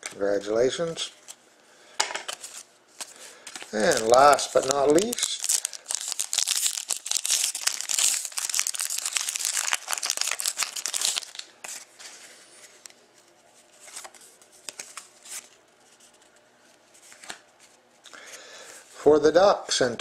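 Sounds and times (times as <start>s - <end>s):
foil pack crinkling: 2.3s - 11.9s
cards rustling: 2.3s - 12.9s.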